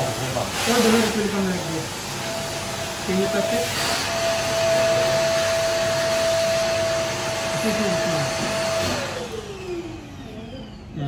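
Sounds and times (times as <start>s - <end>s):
blower motor whining: 0.0s - 11.0s.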